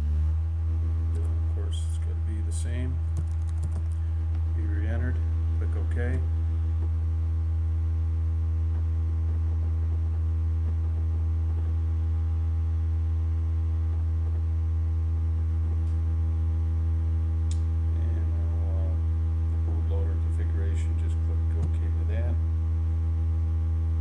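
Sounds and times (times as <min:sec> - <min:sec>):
electrical mains hum: 0:00.0 - 0:24.0.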